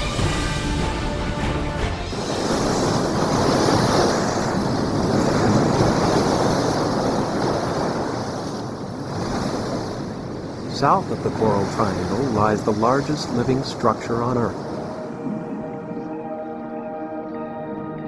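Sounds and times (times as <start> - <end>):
sea waves splashing: 0.0 - 18.0.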